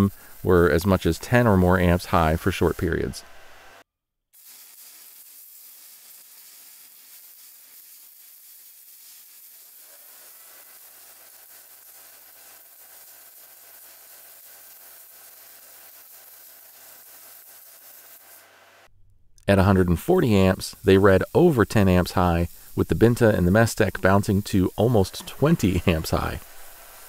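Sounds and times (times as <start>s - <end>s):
welding arc hissing: 0.0s - 3.8s, 4.4s - 27.0s
low hum: 18.9s - 19.8s.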